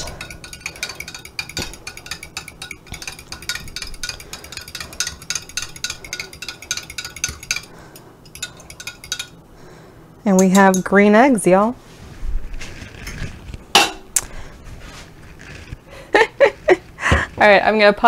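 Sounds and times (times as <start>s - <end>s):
spoon clinking against glass: 0.0s - 7.7s, 8.3s - 9.4s, 10.3s - 11.0s.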